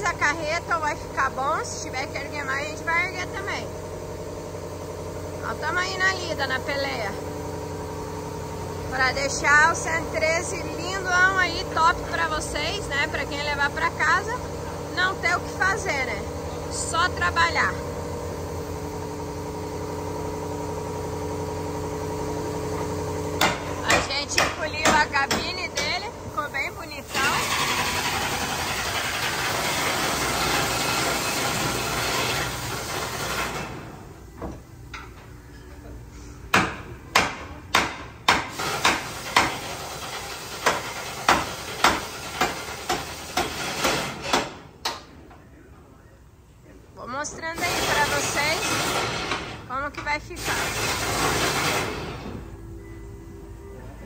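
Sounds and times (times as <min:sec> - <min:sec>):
engine idling: 0:00.0 - 0:34.3
hammer striking steel: 0:23.4 - 0:26.1, 0:36.5 - 0:39.6.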